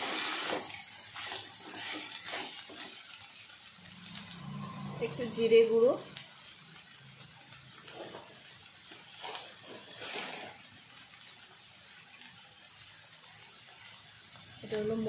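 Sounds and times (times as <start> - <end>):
food sizzling in a pot: 0.0 - 15.0
soft crackles: 7.6 - 11.3.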